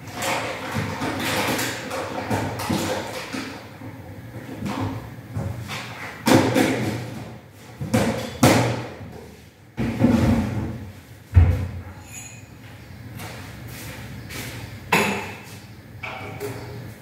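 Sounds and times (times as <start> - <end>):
kitchen knocks and thuds: 4.4 - 9.1, 9.8 - 11.8, 14.9 - 16.5.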